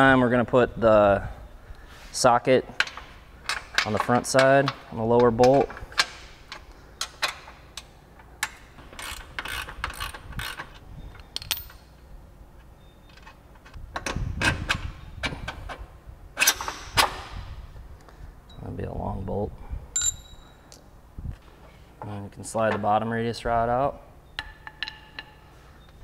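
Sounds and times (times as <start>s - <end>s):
ratchet clicks: 6.0s - 11.7s.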